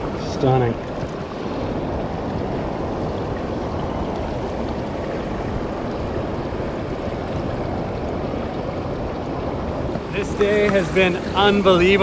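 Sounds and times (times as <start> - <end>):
river rushing: 0.0 - 12.0
water spilling over a weir: 0.0 - 12.0.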